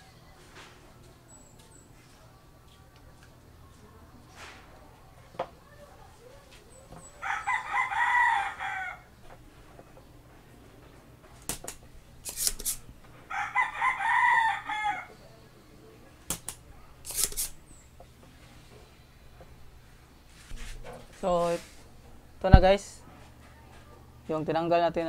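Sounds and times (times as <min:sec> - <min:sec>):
rooster crowing: 0:07.1 - 0:09.2, 0:13.2 - 0:15.4
sharp clicks: 0:11.4 - 0:12.8, 0:16.3 - 0:17.6.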